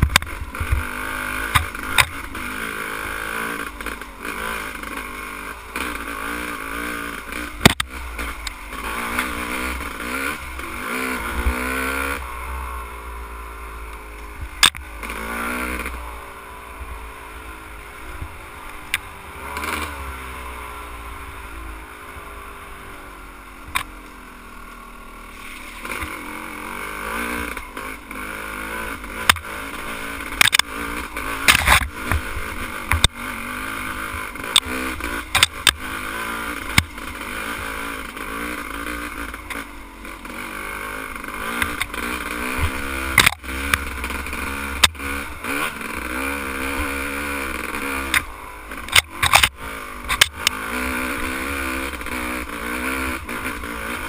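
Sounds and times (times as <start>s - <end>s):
dirt bike engine revving: 0.0s - 54.0s
bike knocking and clattering: 31.4s - 33.2s, 48.2s - 50.6s.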